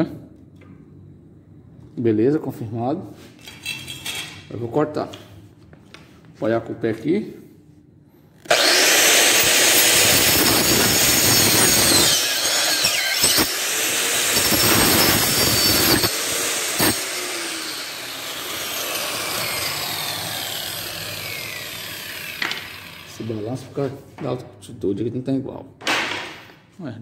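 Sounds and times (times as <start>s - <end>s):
circular saw cutting wood: 8.5s - 24.0s.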